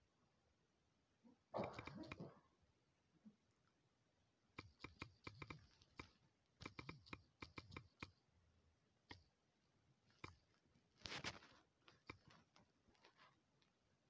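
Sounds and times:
fingers tapping on phone screen: 4.6s - 8.2s.

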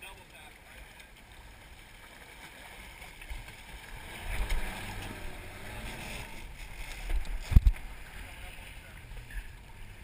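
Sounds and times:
water moving along boat hull: 0.0s - 10.0s
wind on microphone: 7.0s - 7.8s.

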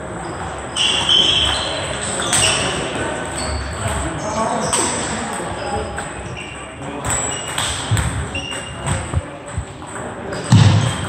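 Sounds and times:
shoe squeaks on wooden floor: 0.2s - 3.9s, 5.6s - 9.8s
ping-pong balls clicking: 4.7s - 11.0s
loud thump: 10.5s - 11.0s.

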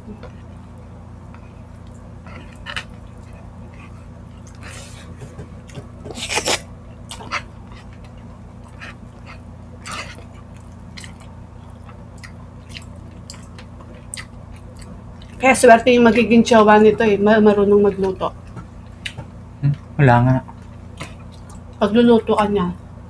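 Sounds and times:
steady low hum: 0.0s - 23.0s
chewing and mouth sounds: 1.3s - 15.4s, 17.9s - 21.8s.

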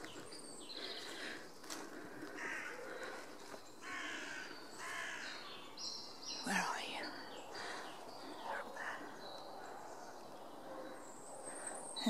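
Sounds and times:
crows cawing: 0.8s - 5.4s, 8.4s - 9.8s.

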